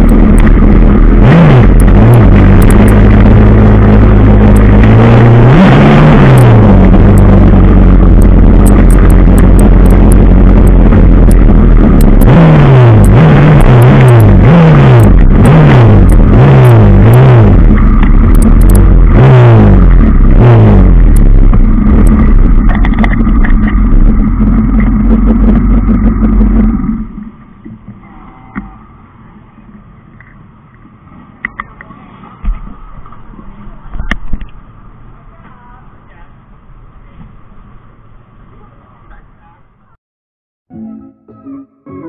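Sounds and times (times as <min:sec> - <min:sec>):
motorcycle engine revving: 0:00.0 - 0:28.9.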